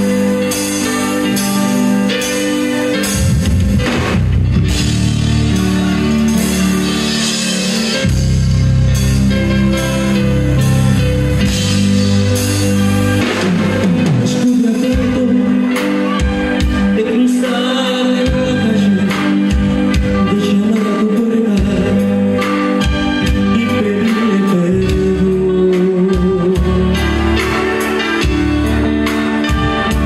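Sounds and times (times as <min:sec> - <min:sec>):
electronic keyboard chords: 0:00.0 - 0:30.0
live band playing: 0:00.0 - 0:30.0.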